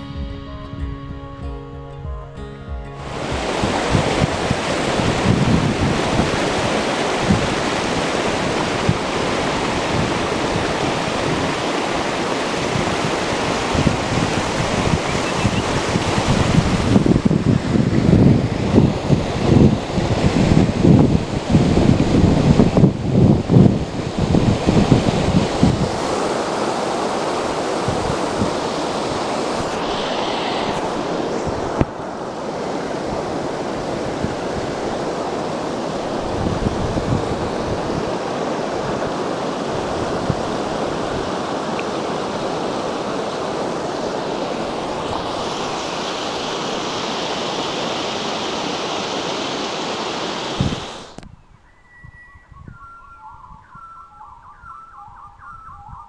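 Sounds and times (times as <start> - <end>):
water rushing over waterfall: 3.0 - 51.2
birds chirping: 14.7 - 16.2, 51.2 - 56.0.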